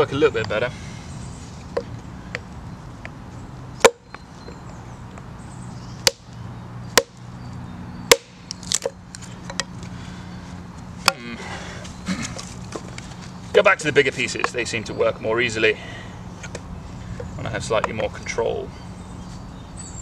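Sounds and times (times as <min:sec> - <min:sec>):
axe knocks splitting log: 0:08.1 - 0:08.9.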